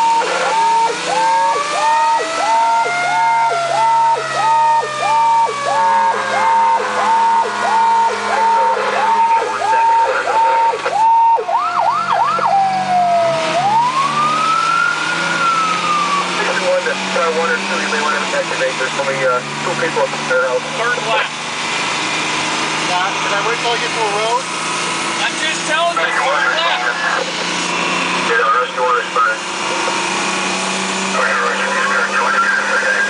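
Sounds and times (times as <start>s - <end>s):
fire truck siren short rising notes: 0.0s - 16.4s
siren rising and falling slowly: 0.0s - 33.0s
truck engine drone: 0.0s - 33.0s.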